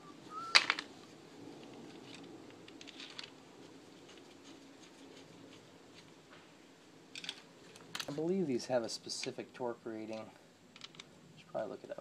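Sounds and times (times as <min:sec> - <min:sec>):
chain clicks and rattles: 0:01.7 - 0:03.4, 0:07.1 - 0:08.3, 0:10.1 - 0:11.1.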